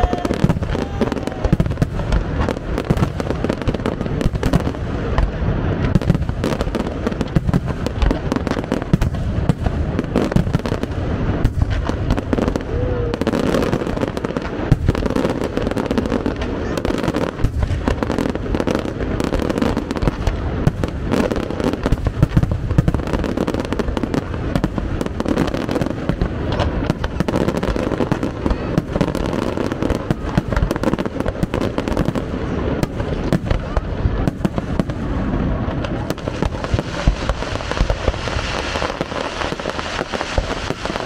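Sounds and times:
fireworks bangs and crackling: 0:00.0 - 0:41.0.

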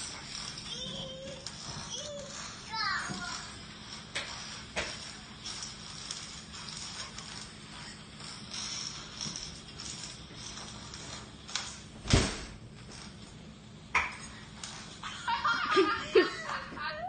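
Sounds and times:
steady hiss: 0:00.0 - 0:17.0
rubber ball thudding on tile: 0:13.9 - 0:14.3.

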